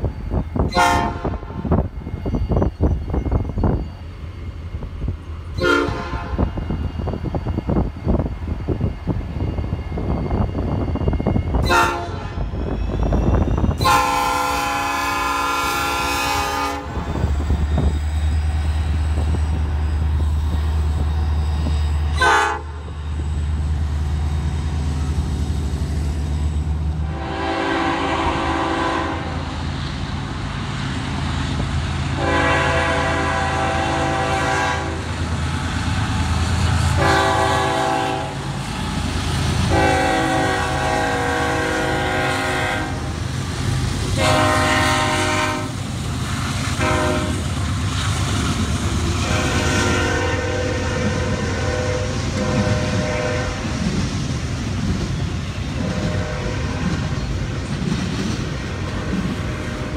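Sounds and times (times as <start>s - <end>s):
low rumble of locomotive engines: 0.0s - 59.9s
locomotive air horn blasts: 0.7s - 1.6s, 5.6s - 6.6s, 11.6s - 12.4s, 13.8s - 17.0s, 22.1s - 22.8s, 27.0s - 29.4s, 32.2s - 35.1s, 37.0s - 38.5s, 39.7s - 43.1s, 44.2s - 45.8s, 46.8s - 47.5s, 49.2s - 53.7s, 55.8s - 57.1s.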